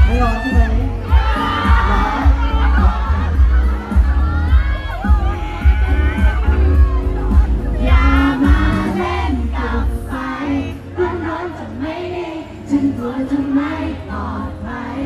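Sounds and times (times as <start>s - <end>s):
man singing into microphone: 0.0s - 3.4s, 7.8s - 15.0s
amplified backing music: 0.0s - 15.0s.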